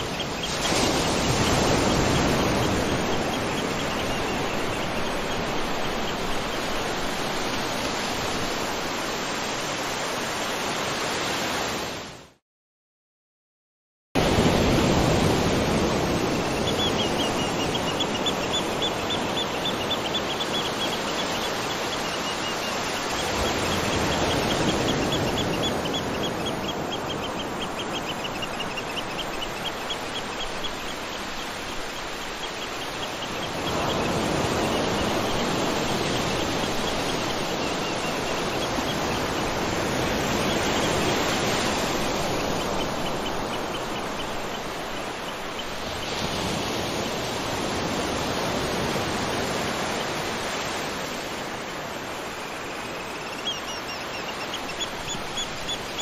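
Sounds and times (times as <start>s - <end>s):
flowing water rushing: 14.3s - 56.0s.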